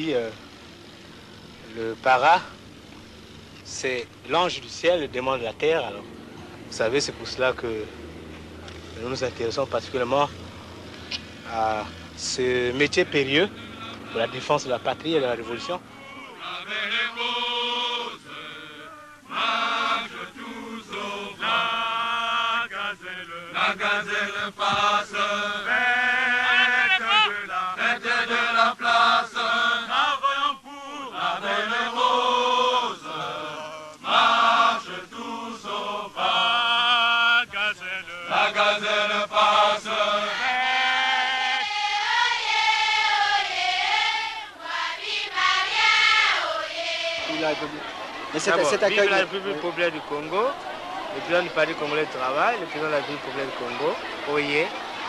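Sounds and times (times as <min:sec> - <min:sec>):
men singing a chant: 0:11.4 - 0:54.8.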